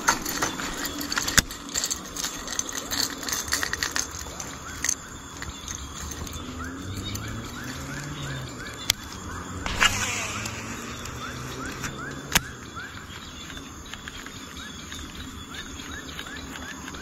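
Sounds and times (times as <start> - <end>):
fishing reel spool whirring: 0.0 - 14.4
sharp click: 9.6 - 12.5.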